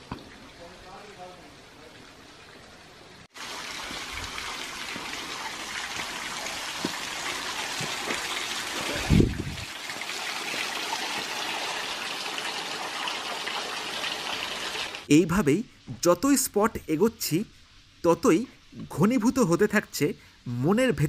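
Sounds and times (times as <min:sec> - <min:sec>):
water trickling over rocks: 0:03.3 - 0:15.1.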